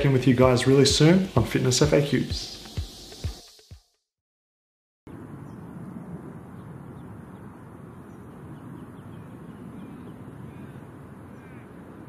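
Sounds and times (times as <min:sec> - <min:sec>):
faint bird calls: 0:06.6 - 0:12.0.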